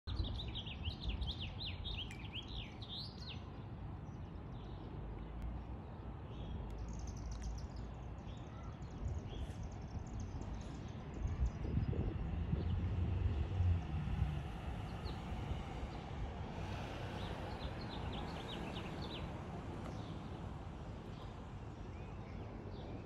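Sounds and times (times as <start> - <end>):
steady low rumble: 11.2 - 15.9.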